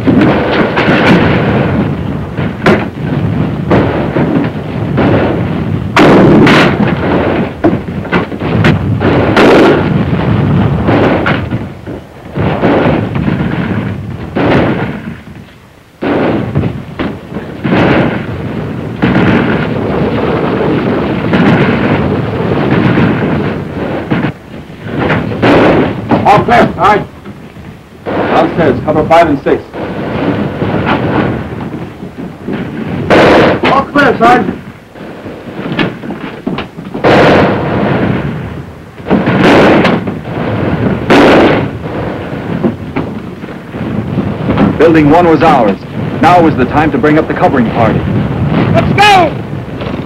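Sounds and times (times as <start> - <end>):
gunshots: 0.0 - 50.0
heavy blasts: 0.0 - 50.0.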